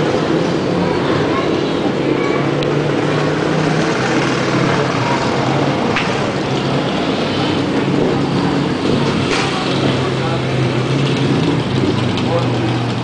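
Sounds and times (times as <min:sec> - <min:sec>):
street traffic: 0:00.0 - 0:13.0.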